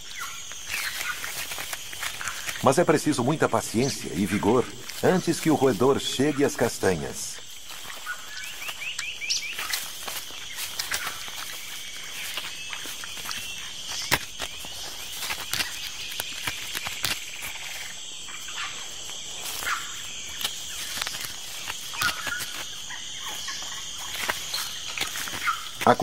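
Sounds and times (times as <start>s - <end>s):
insect chorus drone: 0.0s - 26.0s
animal gnawing a hard shell: 10.7s - 18.0s, 20.3s - 25.9s.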